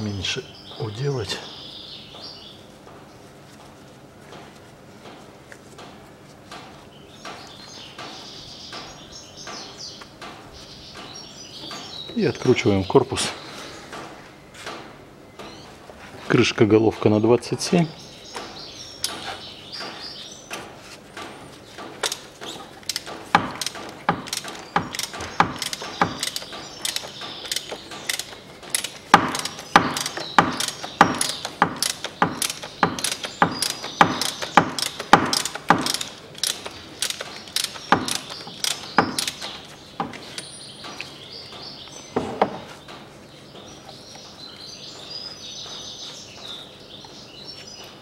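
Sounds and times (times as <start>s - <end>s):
ratchet wrench clicking: 22.8s - 39.5s.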